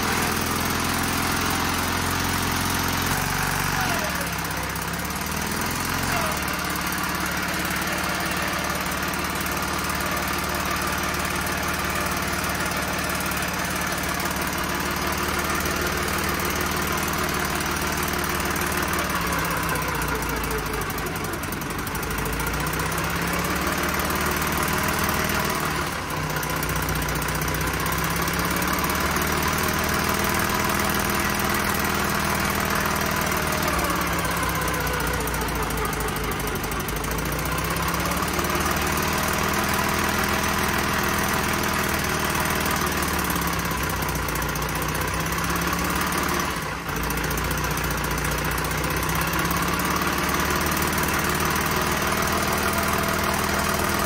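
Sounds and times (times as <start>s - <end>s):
engine revving up and down: 27.7s - 43.6s.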